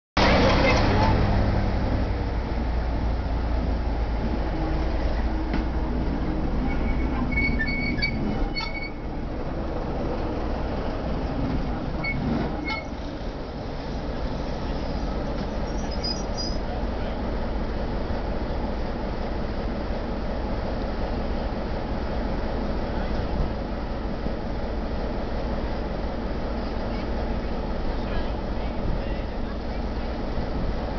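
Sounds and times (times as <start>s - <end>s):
diesel locomotive engine rumbling: 0.2s - 30.9s
high squeals from running gear: 6.7s - 9.0s, 14.9s - 16.6s.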